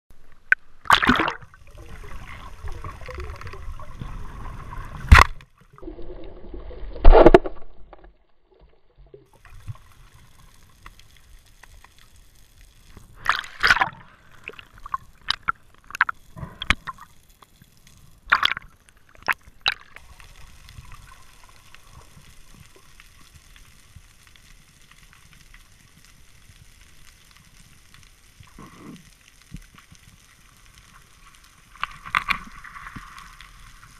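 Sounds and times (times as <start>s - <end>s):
water sloshing and splashing: 0.8s - 10.0s, 13.1s - 17.1s.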